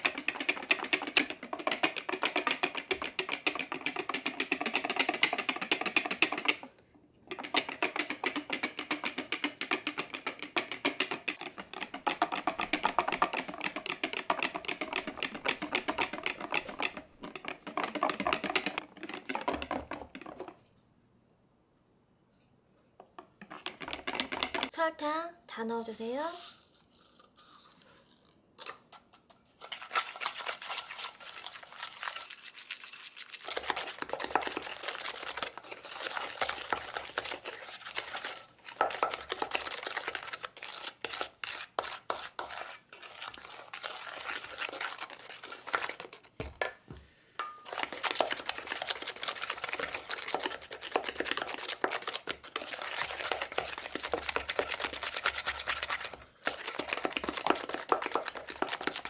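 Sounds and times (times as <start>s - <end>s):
spatula beating in metal bowl: 0.0s - 6.7s, 7.3s - 20.6s, 33.5s - 46.7s, 47.4s - 59.0s.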